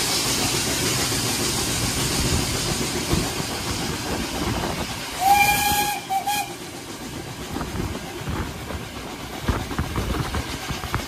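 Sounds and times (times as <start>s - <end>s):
train running on track: 0.0s - 11.0s
train whistle blast: 5.2s - 6.6s.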